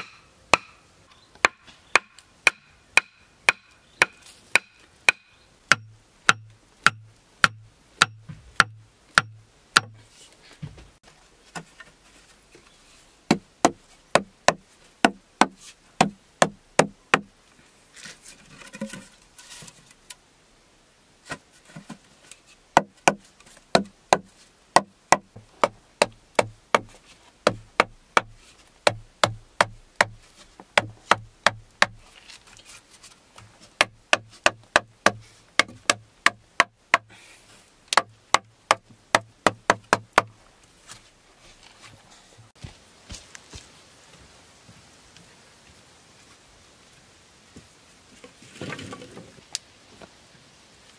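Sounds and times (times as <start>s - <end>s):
wooden poles knocking together: 18.0s - 20.0s, 21.3s - 37.1s, 37.9s - 40.4s.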